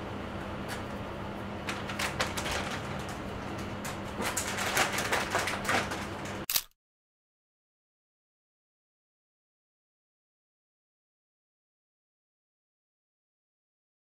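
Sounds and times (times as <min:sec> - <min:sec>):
steady low hum: 0:00.0 - 0:06.4.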